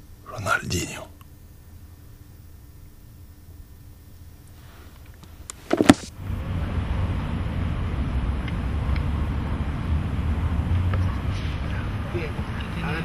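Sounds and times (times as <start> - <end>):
low rumble: 6.1 - 13.0.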